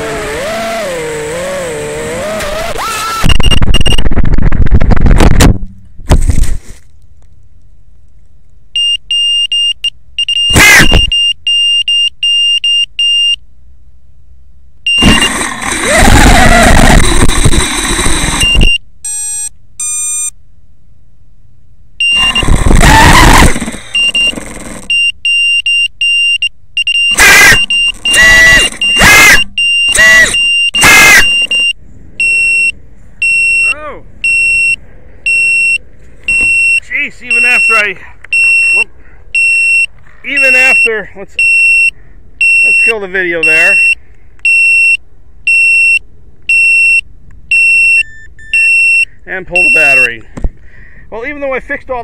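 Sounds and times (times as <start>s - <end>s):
drone motors spinning up: 0.0s - 4.3s, 14.9s - 18.8s, 22.0s - 25.0s, 27.1s - 31.7s
electronic motor beep tones: 2.3s - 4.1s, 8.8s - 13.4s, 14.9s - 20.3s, 22.0s - 50.1s
short high beeps: 3.1s - 4.1s, 8.8s - 13.4s, 14.9s - 15.4s, 18.3s - 20.3s, 22.0s - 22.6s, 24.0s - 50.1s.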